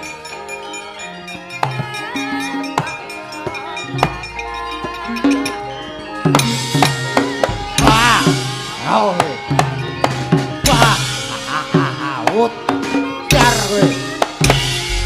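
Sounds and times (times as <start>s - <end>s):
gamelan ensemble playing: 0.0s - 15.0s
drum strokes: 6.3s - 15.0s
person crying out: 10.7s - 12.6s.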